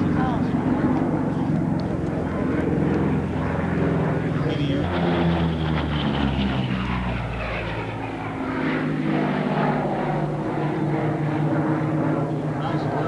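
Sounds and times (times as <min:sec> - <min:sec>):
propeller plane engines fly-by: 0:00.0 - 0:13.0.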